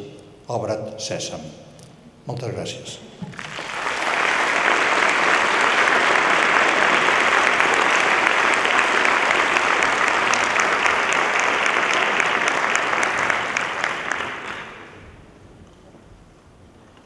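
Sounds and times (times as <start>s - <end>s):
audience applauding: 3.3s - 15.2s.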